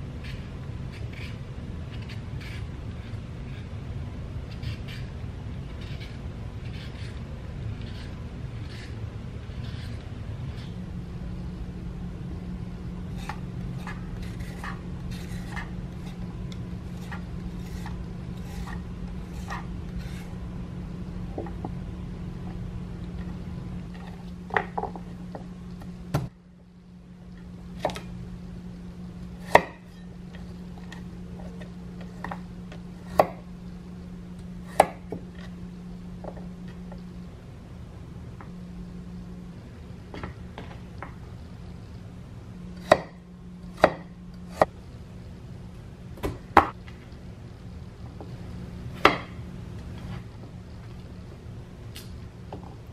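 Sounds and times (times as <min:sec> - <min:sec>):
steady low hum: 0:00.0 - 0:52.9
vegetable peeler scraping carrot: 0:00.2 - 0:03.7, 0:04.5 - 0:10.8, 0:13.1 - 0:16.2, 0:16.9 - 0:20.4
knife cutting on wooden board: 0:13.2 - 0:16.2, 0:16.9 - 0:20.3.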